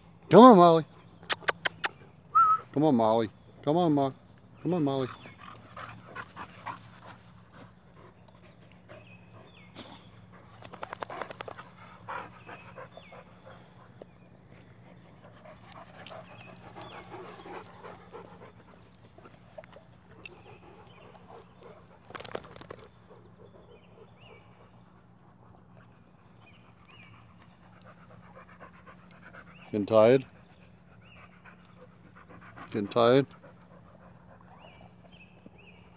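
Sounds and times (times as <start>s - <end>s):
dogs panting: 3.3s - 35.9s
rustles and thumps of dogs: 5.1s - 29.7s.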